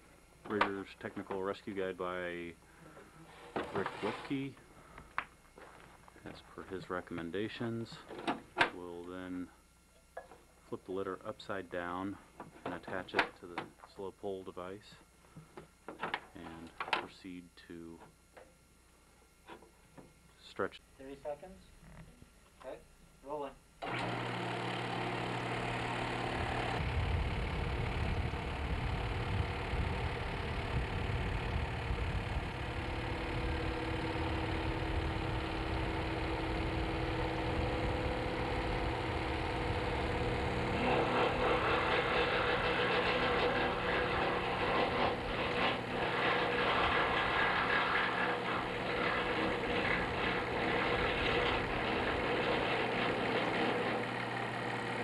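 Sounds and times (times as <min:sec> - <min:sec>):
test rig motor running: 0:23.8 - 0:55.0.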